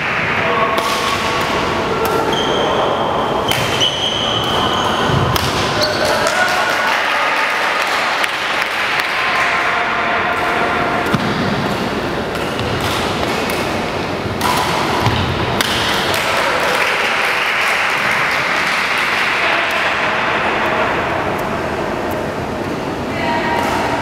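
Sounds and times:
sports hall background noise: 0:00.0 - 0:24.0
rackets striking shuttlecock: 0:00.7 - 0:02.4, 0:03.4 - 0:05.8, 0:10.3 - 0:16.3.

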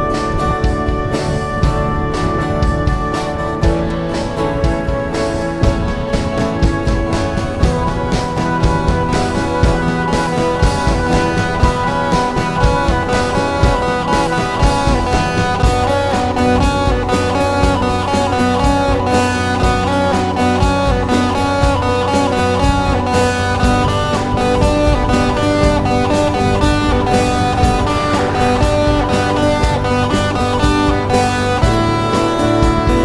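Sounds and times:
guitar background music: 0:00.0 - 0:33.0.

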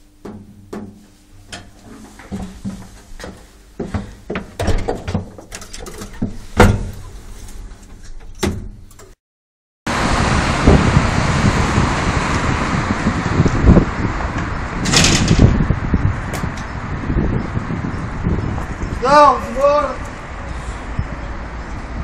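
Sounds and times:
lift doors knocking and clicking: 0:02.3 - 0:07.0
loud steady rushing noise: 0:09.9 - 0:20.5.

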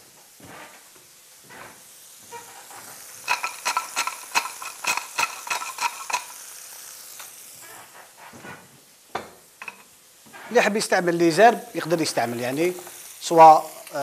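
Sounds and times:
fish sizzling in a pan: 0:00.0 - 0:14.0
pepper mill grinding: 0:02.4 - 0:07.6, 0:09.6 - 0:09.9, 0:11.6 - 0:14.0.

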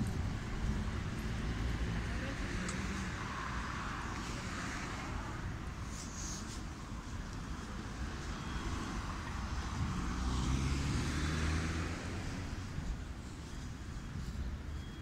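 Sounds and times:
traffic rumble: 0:00.0 - 0:15.0
car passing close: 0:08.3 - 0:12.8.

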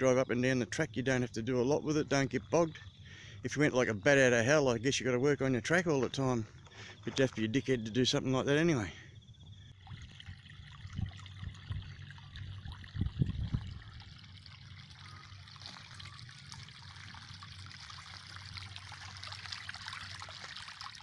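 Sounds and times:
water trickling into puddle: 0:09.4 - 0:21.0.

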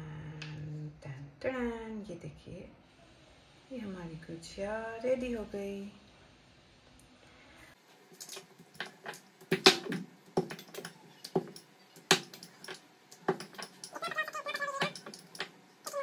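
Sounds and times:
kitchen tools knocking and clicking: 0:08.2 - 0:16.0
wavering squeak: 0:13.9 - 0:16.0.

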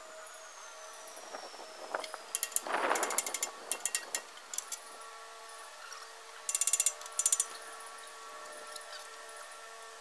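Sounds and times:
faint steady hum: 0:00.0 - 0:10.0
metallic scaffolding clicks: 0:06.5 - 0:07.6.

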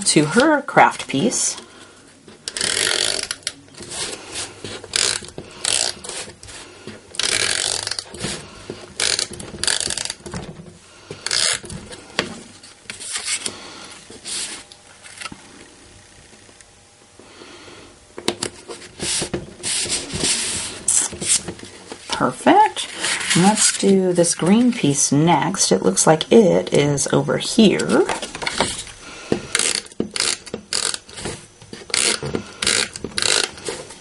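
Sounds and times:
cardstock scraping and rustling: 0:11.2 - 0:15.4, 0:18.5 - 0:22.2, 0:22.8 - 0:24.9.

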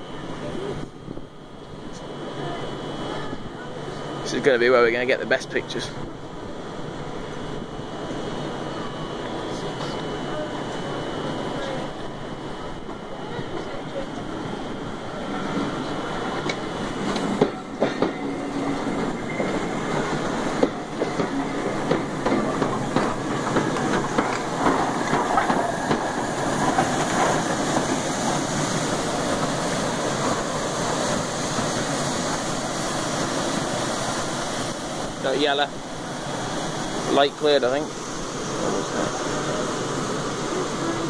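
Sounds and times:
train rumble: 0:00.0 - 0:41.0
train wheels clicking on rail joints: 0:16.4 - 0:32.4.

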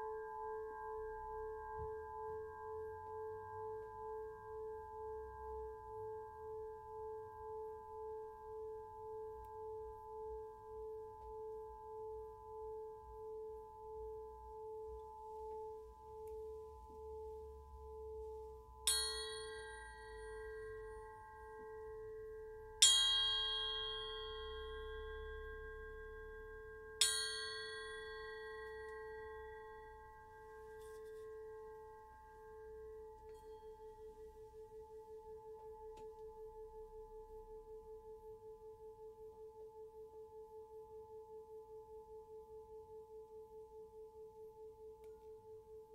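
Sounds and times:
crystal pyramid struck with mallet: 0:18.8 - 0:31.7.

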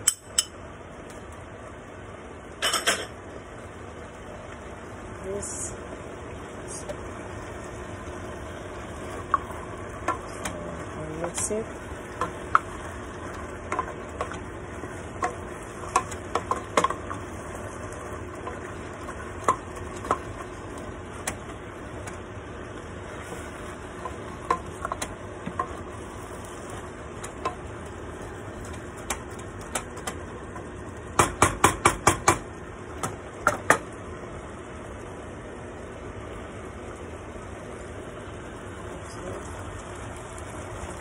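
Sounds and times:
food sizzling in a pot: 0:00.0 - 0:41.0
wooden spoon knocking and scraping pot: 0:09.1 - 0:22.2, 0:23.2 - 0:27.7, 0:28.6 - 0:33.9.

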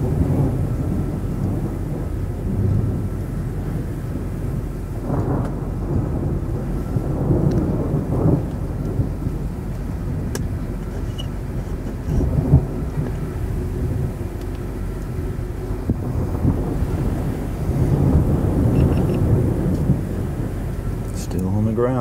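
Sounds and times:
thunder rumbling: 0:00.0 - 0:22.0.

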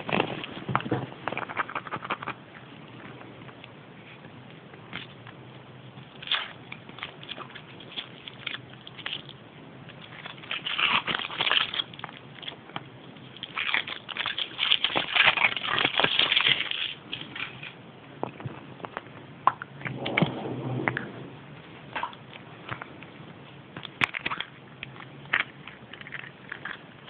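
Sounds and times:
foil wrapper crinkling: 0:00.0 - 0:02.4, 0:06.1 - 0:17.8.

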